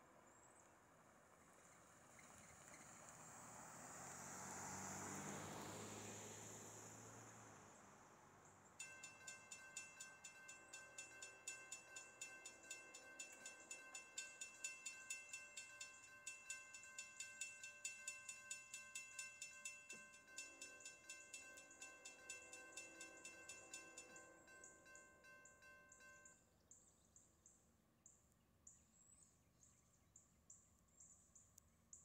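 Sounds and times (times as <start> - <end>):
railroad crossing bell ringing: 8.8 - 26.5.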